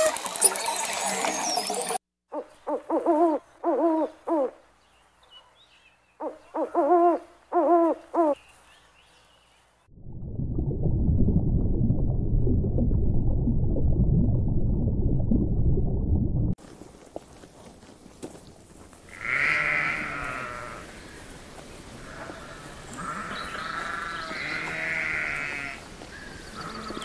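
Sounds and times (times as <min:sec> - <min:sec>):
owl hooting: 0:02.3 - 0:04.6, 0:06.2 - 0:08.4
low rumbling noise: 0:09.9 - 0:16.6.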